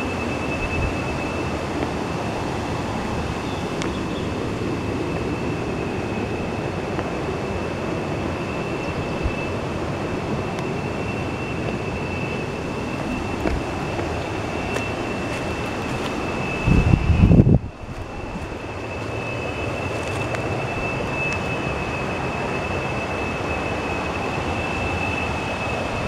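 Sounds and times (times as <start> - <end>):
river water flowing over rocks: 0.0 - 16.6.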